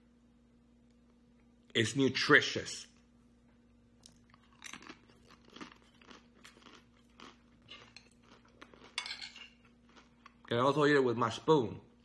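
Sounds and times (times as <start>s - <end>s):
crunching and chewing: 4.0s - 10.7s.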